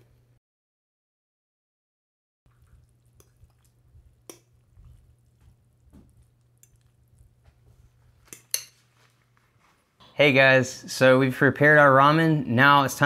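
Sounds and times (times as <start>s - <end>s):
wet squishing of noodles: 2.5s - 10.0s
fork clicking against bowl: 3.2s - 4.5s, 8.3s - 8.8s.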